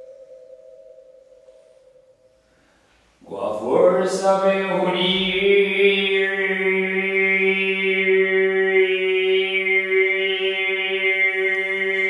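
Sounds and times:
man overtone chanting: 3.2s - 12.0s.

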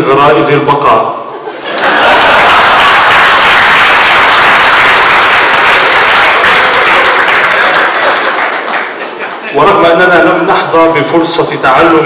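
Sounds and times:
audience applauding: 1.7s - 9.6s.

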